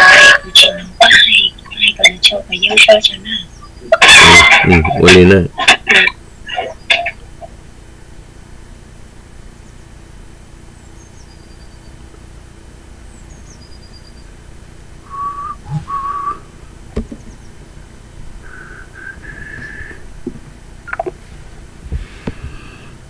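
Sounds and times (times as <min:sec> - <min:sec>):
low steady hum: 0:00.0 - 0:23.0
high falling chirps: 0:15.0 - 0:17.7, 0:18.4 - 0:20.1
short whistled notes: 0:15.1 - 0:16.5.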